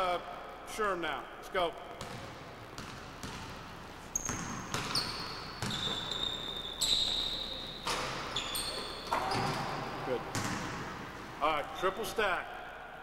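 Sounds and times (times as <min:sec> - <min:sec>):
basketball bouncing on wooden floor: 0:02.0 - 0:03.6, 0:04.2 - 0:06.1, 0:09.0 - 0:10.8
sneaker squeaks: 0:04.0 - 0:10.6.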